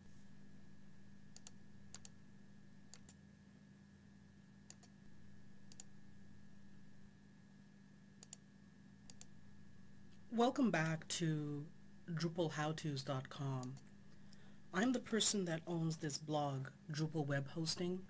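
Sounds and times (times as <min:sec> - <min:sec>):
low electrical hum: 0:00.0 - 0:18.0
computer mouse clicks: 0:01.3 - 0:02.2, 0:02.9 - 0:03.2, 0:04.7 - 0:05.0, 0:05.7 - 0:05.9, 0:08.2 - 0:08.4, 0:09.1 - 0:09.3.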